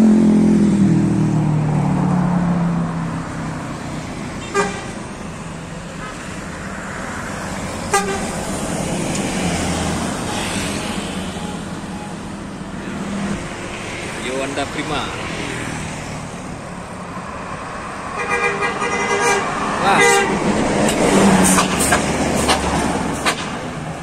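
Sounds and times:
bus engine and tyre noise: 0.0s - 24.0s
vehicle passing: 0.0s - 24.0s
horn toots: 4.4s - 5.0s, 7.9s - 8.4s, 18.1s - 20.4s.

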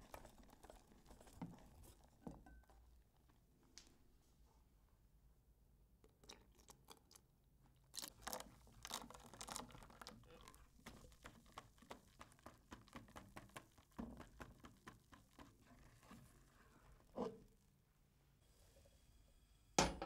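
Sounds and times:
milk pouring: 0.0s - 2.8s, 6.0s - 17.2s.

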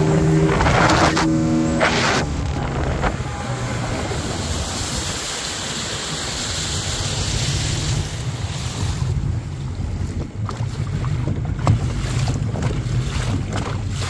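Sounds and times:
motorboat engine running: 0.0s - 14.0s
wind and water hiss: 0.0s - 14.0s.

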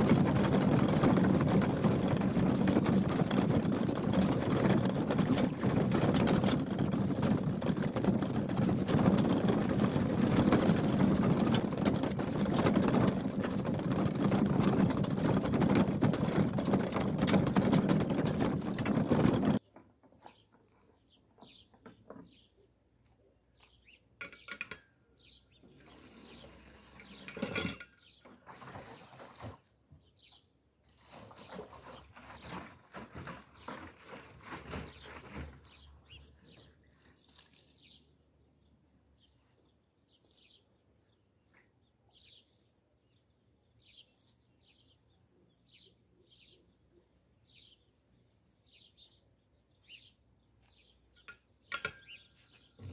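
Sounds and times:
water pouring: 0.0s - 19.6s, 25.7s - 27.6s, 28.3s - 29.6s.

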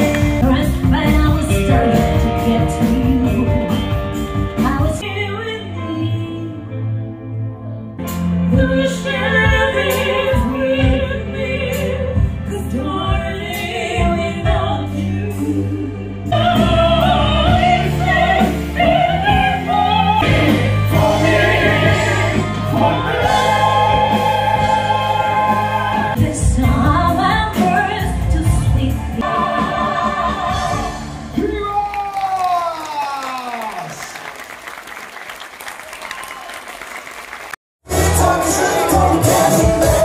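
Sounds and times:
piano and band accompaniment: 0.0s - 32.5s, 37.8s - 40.0s
woman singing: 0.3s - 3.8s, 4.6s - 6.8s, 8.5s - 20.6s, 22.8s - 31.0s
man singing: 37.9s - 40.0s.

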